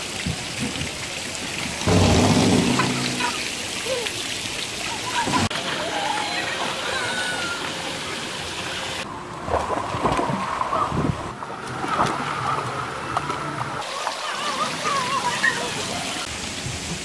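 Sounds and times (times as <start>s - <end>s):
pool water splashing: 0.0s - 17.0s.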